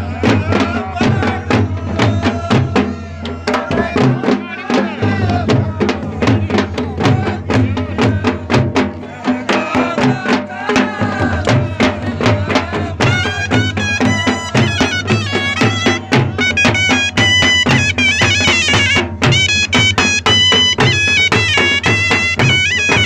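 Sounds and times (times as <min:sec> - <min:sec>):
steady drumbeat: 0:00.0 - 0:23.0
reed pipe melody: 0:13.0 - 0:23.0.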